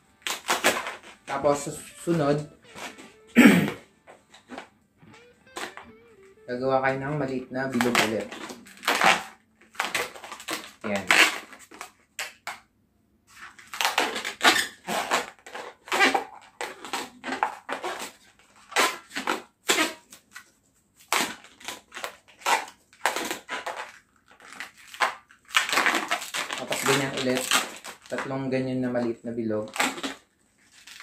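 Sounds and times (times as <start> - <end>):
balloon squeaking: 0.0 - 12.6, 13.3 - 20.3, 21.0 - 28.2, 29.5 - 31.0.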